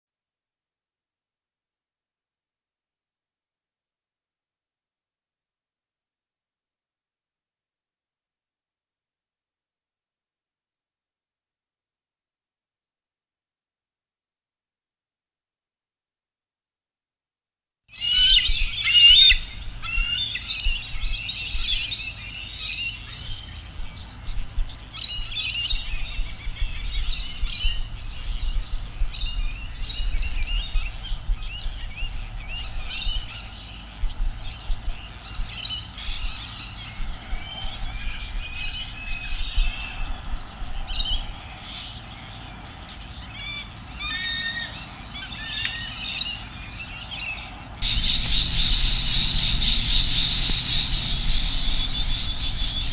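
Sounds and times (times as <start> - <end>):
small birds chirping and trilling: 17.9 - 52.9
steady low rumble: 19.4 - 43.0, 47.5 - 52.9.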